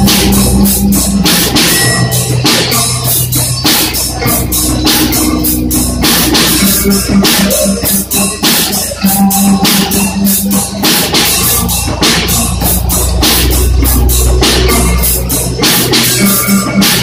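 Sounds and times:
bass guitar: 0:00.0 - 0:17.0
drum kit beat: 0:00.0 - 0:17.0.

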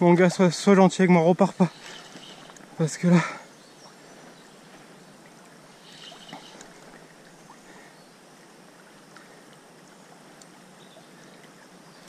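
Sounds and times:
river water lapping: 0:00.0 - 0:12.0
faint clicks: 0:01.8 - 0:02.7, 0:05.2 - 0:07.1, 0:09.1 - 0:10.6.

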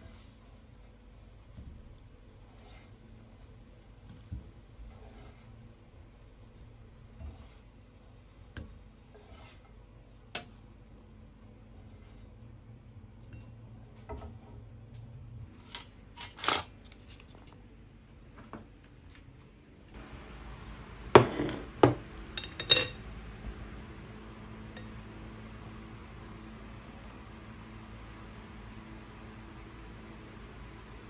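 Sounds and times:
low room hum: 0:00.0 - 0:31.0
chopsticks clinking on glass plate: 0:22.4 - 0:23.0.

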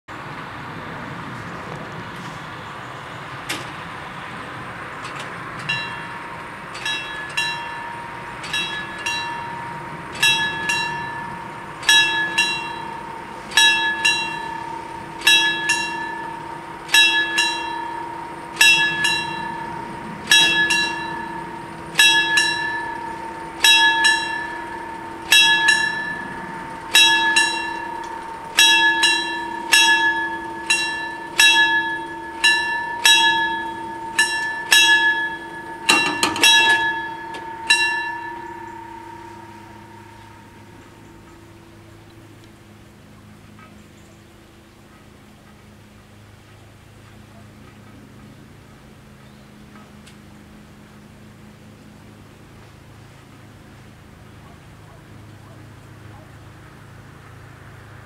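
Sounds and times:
level-crossing bells ringing: 0:05.0 - 0:43.4
steady tone: 0:05.6 - 0:42.9.

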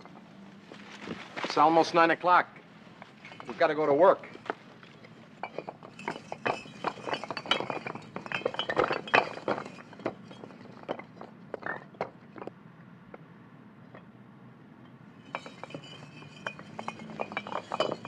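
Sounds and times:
bricks and rubble clattering: 0:03.0 - 0:12.5, 0:15.3 - 0:18.0.

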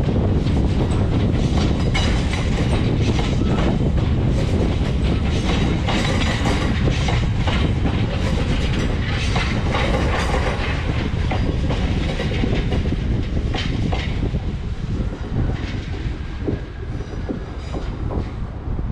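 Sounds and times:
clickety-clack over rail joints: 0:00.0 - 0:18.7
freight train wheels rumbling: 0:00.0 - 0:18.9.

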